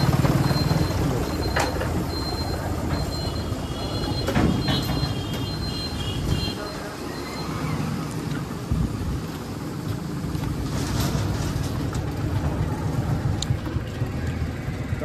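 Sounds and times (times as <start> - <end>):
high beeping tone: 0.0 - 7.7.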